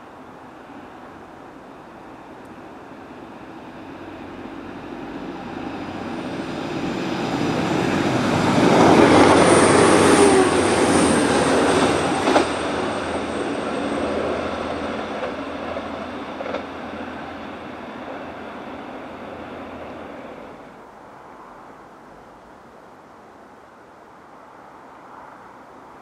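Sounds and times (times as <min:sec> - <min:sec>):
diesel train passing: 0:00.0 - 0:21.8.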